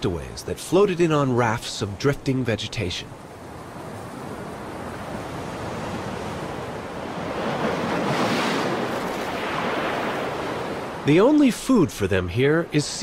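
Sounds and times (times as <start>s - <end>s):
ocean surf washing on shore: 0.0s - 13.0s.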